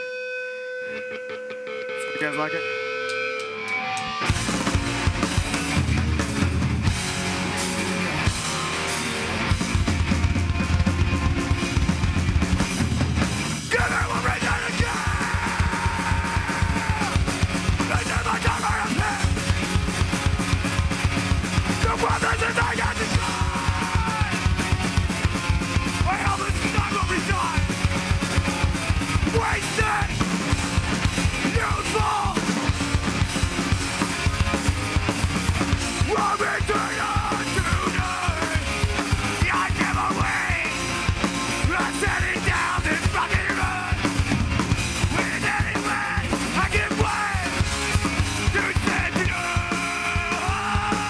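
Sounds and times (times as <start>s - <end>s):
punk band playing live: 0.0s - 51.0s
rapid drum hits: 8.2s - 51.0s
vocalist yelling: 13.7s - 19.4s, 21.8s - 24.6s, 26.0s - 27.7s, 29.2s - 30.2s, 31.4s - 32.5s, 36.0s - 38.7s, 39.3s - 40.8s, 41.6s - 44.0s, 45.1s - 47.6s, 48.5s - 51.0s.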